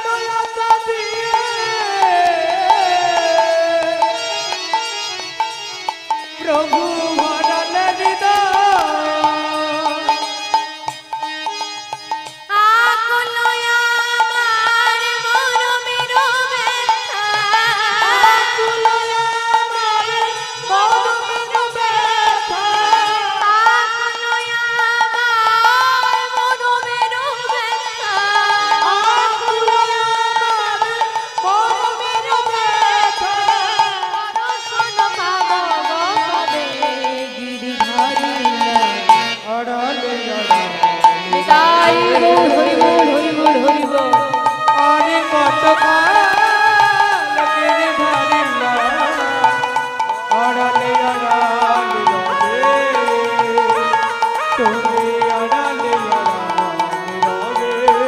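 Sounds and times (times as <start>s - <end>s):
person singing: 0.0s - 5.5s, 6.2s - 11.7s, 12.4s - 58.0s
sustained melodic accompaniment: 0.0s - 58.0s
hand drum rhythm: 31.0s - 39.5s, 40.4s - 58.0s.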